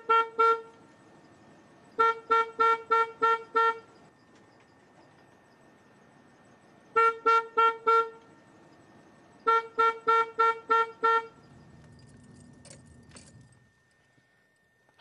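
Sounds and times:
car horn toots: 0:00.0 - 0:00.8, 0:02.0 - 0:03.9, 0:06.9 - 0:08.3, 0:09.4 - 0:11.4.

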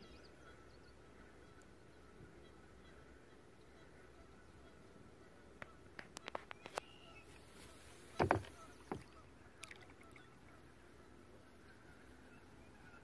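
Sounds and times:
water splashing: 0:07.3 - 0:10.5
light taps on water: 0:07.6 - 0:10.2.

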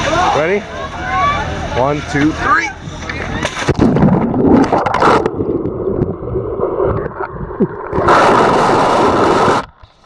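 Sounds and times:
slush water gurgling underwater: 0:03.6 - 0:09.7.

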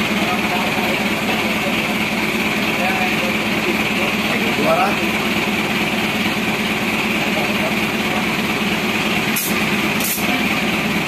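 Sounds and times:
air inflator humming and hissing: 0:00.0 - 0:11.0
short sharp air hisses: 0:09.3 - 0:10.3.

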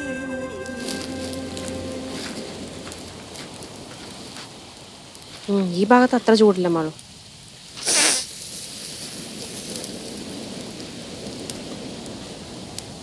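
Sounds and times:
wood fire crackling and sizzling: 0:00.0 - 0:13.0
fire pops: 0:00.7 - 0:13.0
brush hissing on hot meat: 0:07.7 - 0:08.7.

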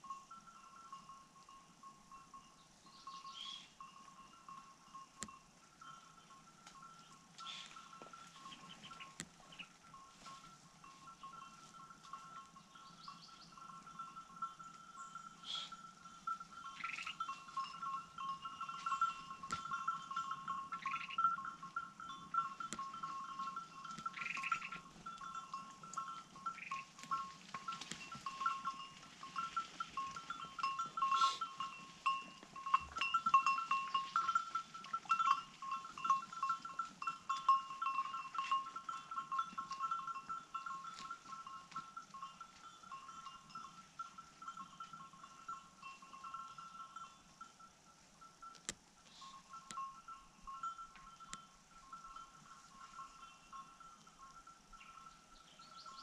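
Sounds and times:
high bird calls: 0:02.9 - 0:03.8, 0:07.4 - 0:09.8, 0:16.6 - 0:17.7, 0:20.2 - 0:21.5, 0:22.4 - 0:25.3.

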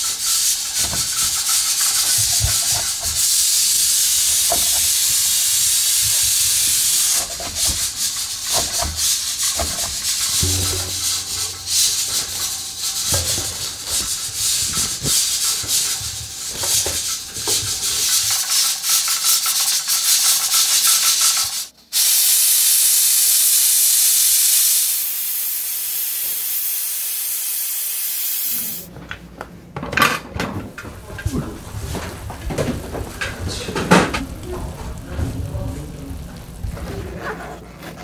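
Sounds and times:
pressure cooker valve hissing: 0:00.0 - 0:28.9.

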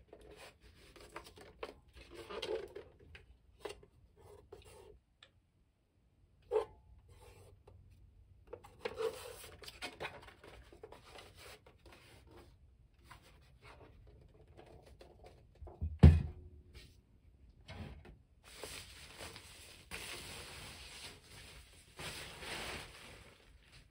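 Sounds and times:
packing wrap rustling: 0:18.5 - 0:23.9.

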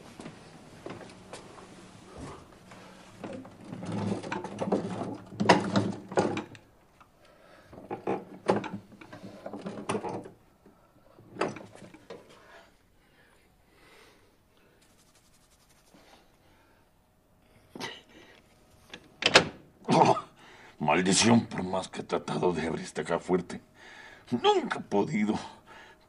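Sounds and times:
mechanical knocks and rattles: 0:03.2 - 0:06.6.

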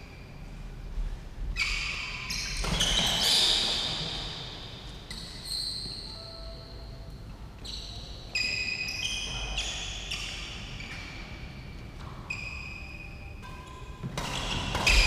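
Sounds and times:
sneakers squeaking on court floor: 0:01.5 - 0:06.4, 0:07.6 - 0:13.2, 0:14.0 - 0:15.0.

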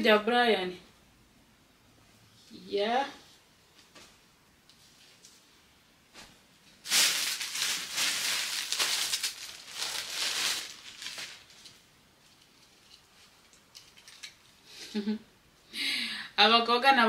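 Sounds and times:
plastic bag crinkling: 0:06.8 - 0:14.5.

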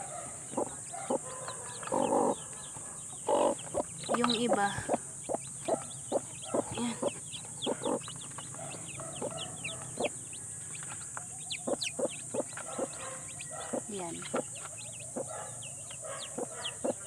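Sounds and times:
chicks peeping: 0:00.0 - 0:17.0
hen clucking: 0:00.0 - 0:17.0.

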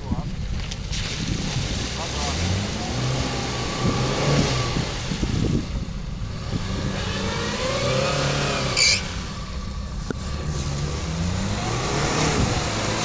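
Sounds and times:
engine revving: 0:00.0 - 0:13.0
brief high squeal: 0:08.7 - 0:09.1.

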